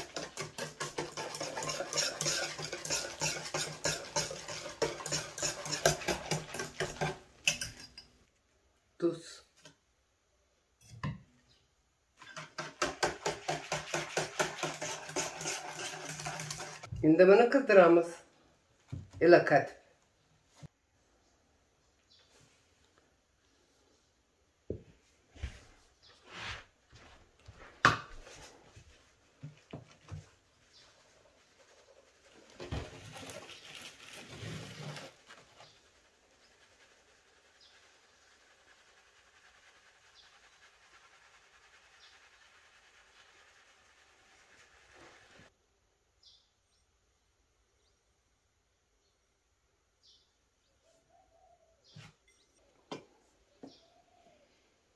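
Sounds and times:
wire whisk beating liquid: 0:00.0 - 0:08.1, 0:12.2 - 0:16.9
sieve rustling patter: 0:28.2 - 0:45.5.

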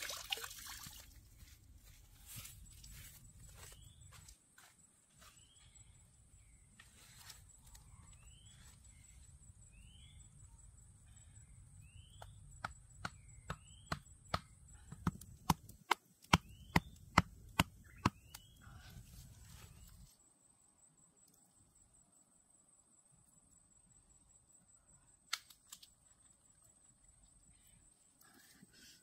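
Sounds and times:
bird chirping: 0:02.4 - 0:15.0, 0:16.3 - 0:20.0
wooden stake being pounded: 0:12.1 - 0:18.5.

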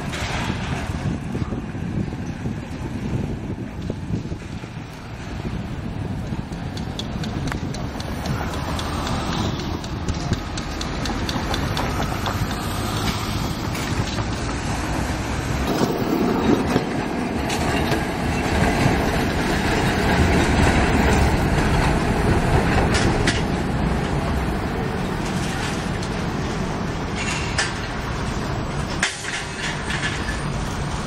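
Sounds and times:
road traffic: 0:00.0 - 0:31.0
tram wheels and motors rumbling: 0:00.0 - 0:31.0
wheels clicking on rails: 0:00.0 - 0:31.0.

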